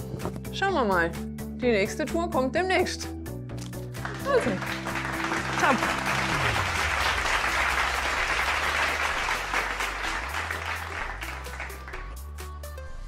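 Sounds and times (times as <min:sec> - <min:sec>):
background music: 0:00.0 - 0:13.0
applause: 0:04.0 - 0:12.4.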